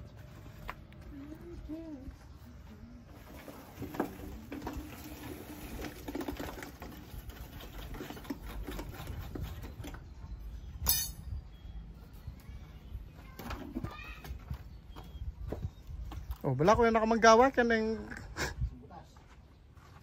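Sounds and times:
masonry knocks and scrapes: 3.4 - 10.2
metallic clink: 10.8 - 11.3.

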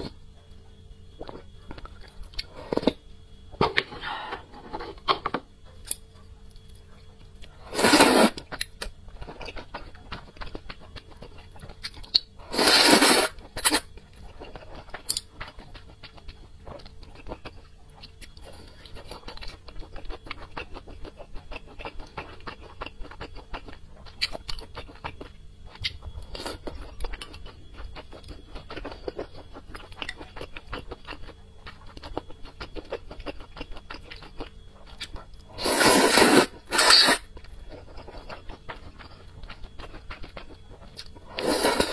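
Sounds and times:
soft chewing: 0.0 - 7.7, 8.3 - 12.5, 13.3 - 41.9
slurping noodles: 7.7 - 8.4, 12.5 - 13.8, 35.6 - 37.3, 41.3 - 41.9.

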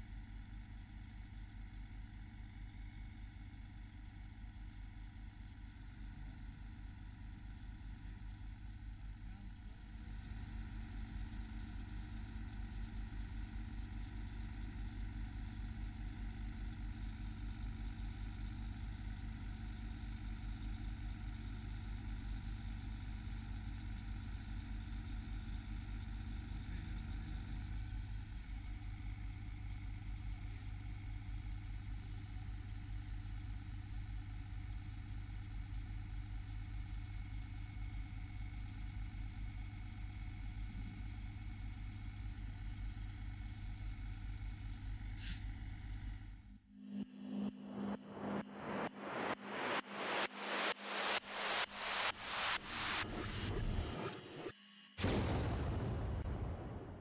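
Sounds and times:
diesel engine idling: 9.4 - 46.4.

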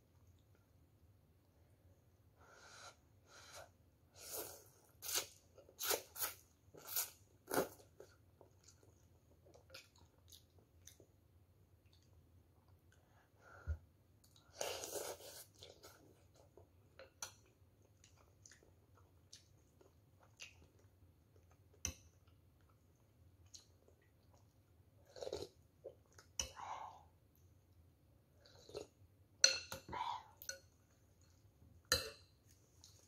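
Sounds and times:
quiet chewing with clicks: 8.0 - 13.3, 15.4 - 26.6, 30.4 - 33.0.

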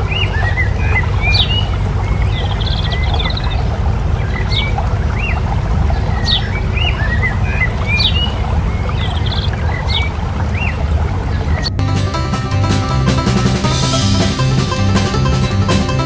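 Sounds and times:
songbirds chirping: 0.0 - 11.9.

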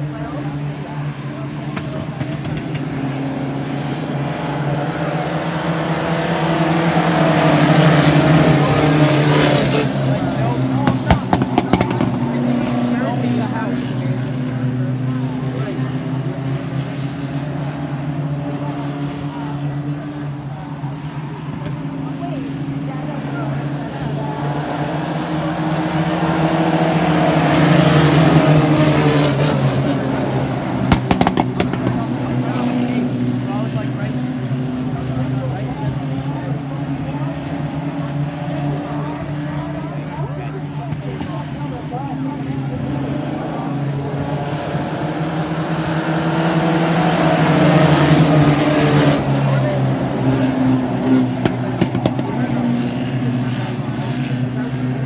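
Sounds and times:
racing truck engines: 0.0 - 55.0.

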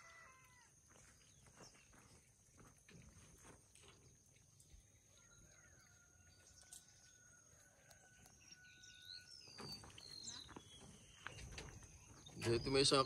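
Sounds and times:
faint bird chirps: 4.6 - 13.0.

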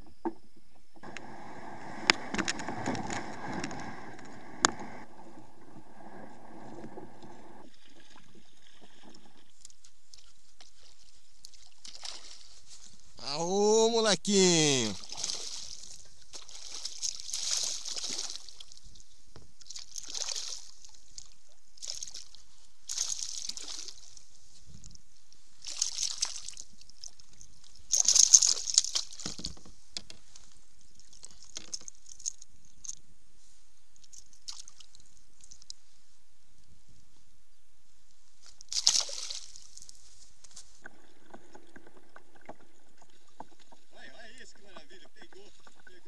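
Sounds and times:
fish splashing in water: 15.0 - 18.7, 38.7 - 39.7
small ticks: 31.2 - 33.0.

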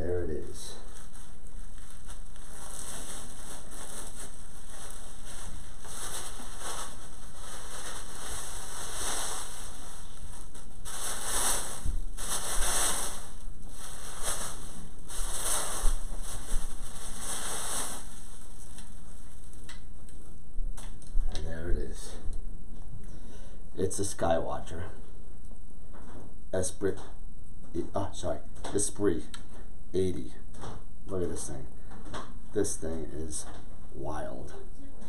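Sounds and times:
plastic wrap rustling and crinkling: 0.4 - 21.3.

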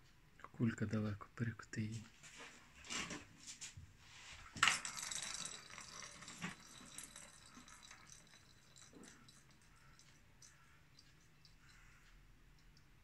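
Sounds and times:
plastic ball rolling on track: 4.4 - 10.0.

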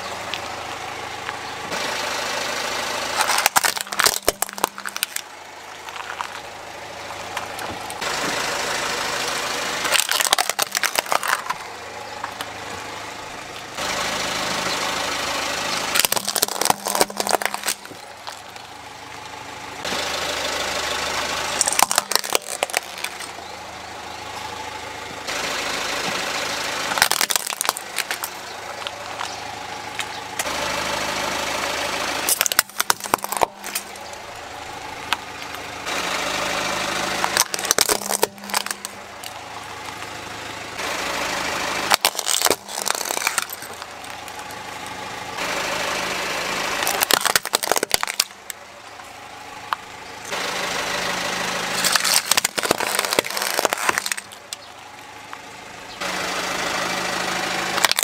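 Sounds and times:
car engine running slowly: 0.0 - 58.0
plastic cracking and snapping: 3.2 - 6.4, 9.8 - 11.6, 15.9 - 18.6, 21.6 - 23.4, 27.0 - 29.4, 32.3 - 34.1, 37.2 - 39.4, 41.9 - 44.6, 46.8 - 48.5, 51.8 - 54.6, 57.8 - 58.0.

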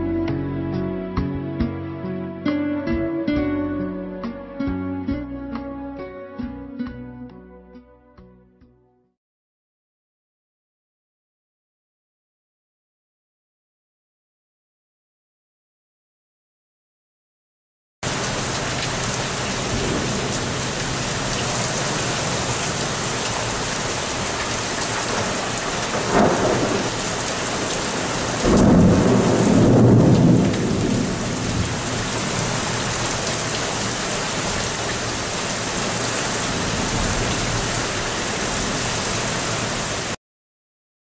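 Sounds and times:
rain-like hiss: 18.0 - 40.2.

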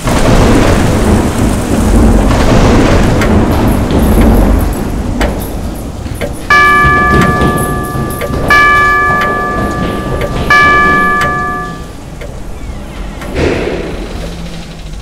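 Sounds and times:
heavy rain: 0.0 - 15.0
thunder rumble: 0.0 - 15.0
clock bell chimes: 6.4 - 12.0.

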